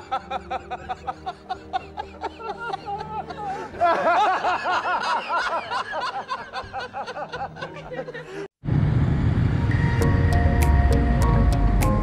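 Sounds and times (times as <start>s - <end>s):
high-pitched giggling laughter: 0.0s - 8.3s.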